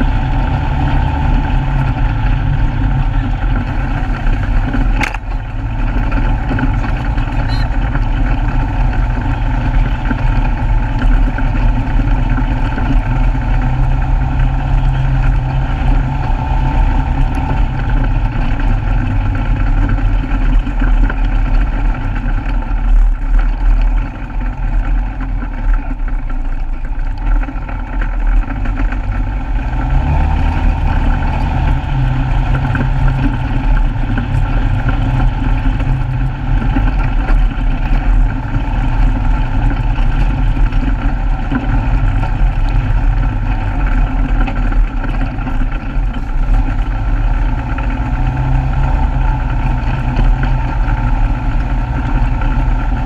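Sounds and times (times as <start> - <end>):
off-road vehicle engine running: 0.0 - 53.0.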